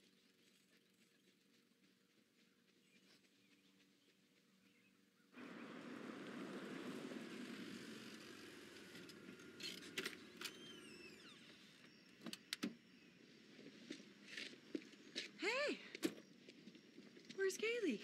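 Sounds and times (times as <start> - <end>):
car engine and tyre noise: 0.0 - 15.4.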